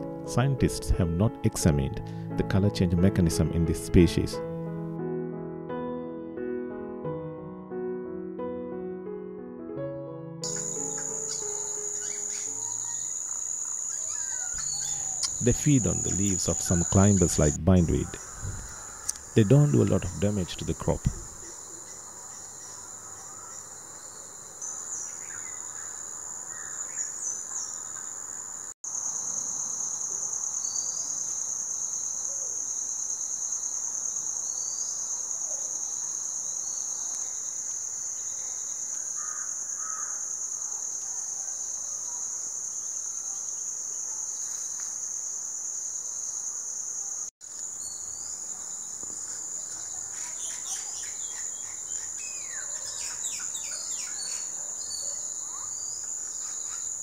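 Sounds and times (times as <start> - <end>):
bird chirps: 10.4 - 22.8, 47.8 - 57.0
high-pitched insect chorus: 10.4 - 57.0.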